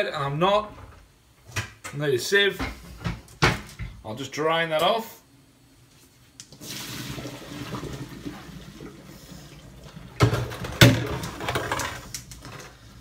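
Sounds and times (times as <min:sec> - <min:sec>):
water pouring into sink: 0:06.6 - 0:11.4.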